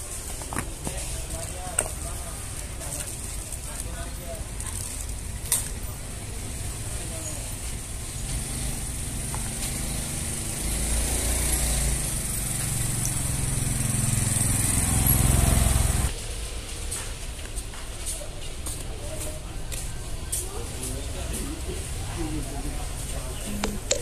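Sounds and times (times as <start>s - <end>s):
engine humming: 4.5s - 16.1s, 21.6s - 24.0s.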